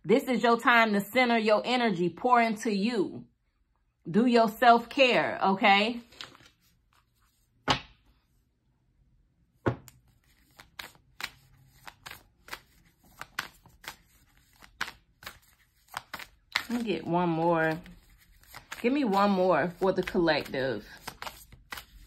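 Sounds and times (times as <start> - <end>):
card slaps while shuffling: 7.6 - 8.1, 9.6 - 16.8
cards tapping: 9.7 - 17.0, 17.6 - 22.0.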